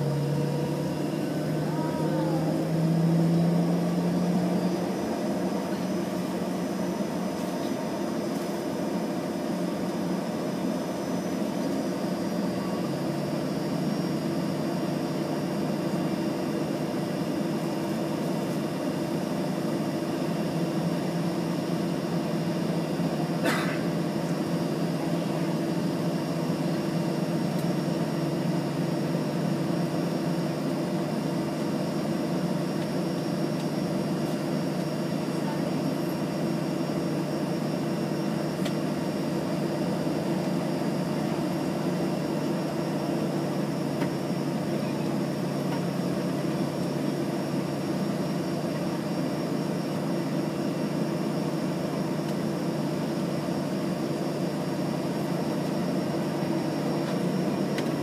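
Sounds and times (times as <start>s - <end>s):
aircraft cabin low drone: 0.0s - 58.0s.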